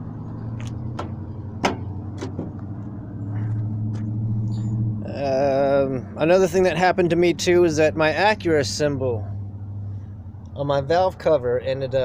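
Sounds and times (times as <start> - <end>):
car engine idling: 0.0 - 11.5
hood knocks: 0.6 - 2.7.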